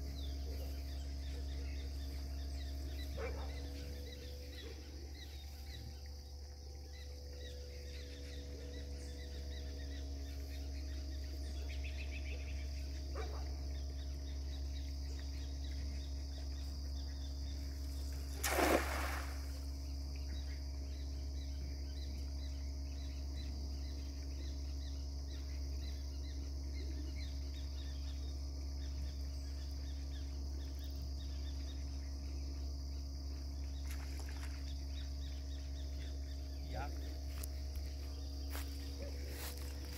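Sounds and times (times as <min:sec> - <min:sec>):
insects chirping: 0:00.0 - 0:39.9
low hum: 0:00.0 - 0:39.9
net splashing on water: 0:18.4 - 0:19.6.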